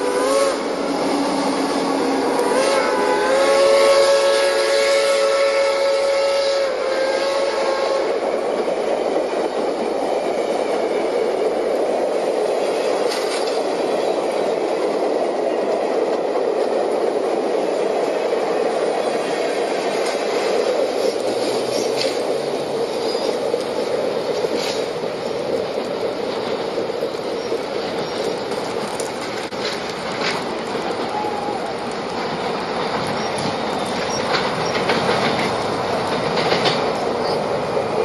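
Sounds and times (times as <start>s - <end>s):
steam locomotive whistle: 0.0s - 8.4s
train wheels rumbling on rails: 0.0s - 38.0s.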